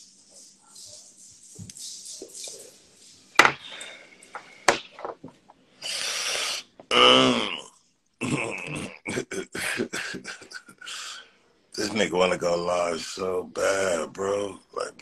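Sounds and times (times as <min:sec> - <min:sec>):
breathy exhale: 0:05.8 - 0:06.7, 0:10.9 - 0:11.3
man muttering: 0:06.9 - 0:11.2
man coughing: 0:08.2 - 0:11.0.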